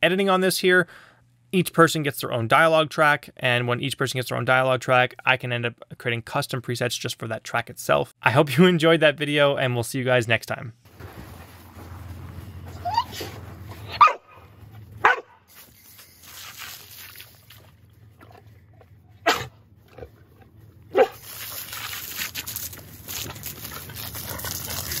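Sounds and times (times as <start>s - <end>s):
dog yipping: 12.7s - 14.4s, 19.2s - 19.5s, 20.9s - 21.2s
garden hose spraying water: 15.5s - 17.8s, 21.0s - 25.0s.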